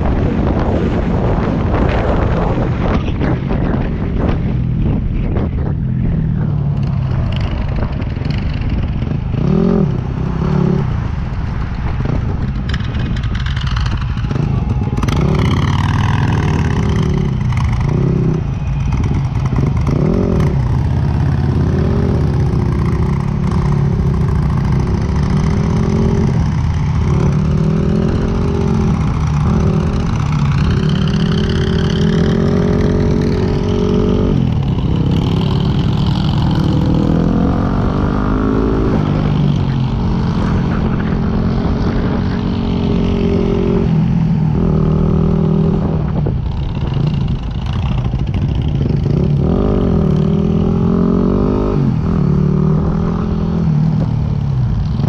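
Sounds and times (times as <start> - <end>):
motorcycle engine revving: 0.0 - 11.2, 12.0 - 55.0
wind noise on microphone: 0.0 - 55.0.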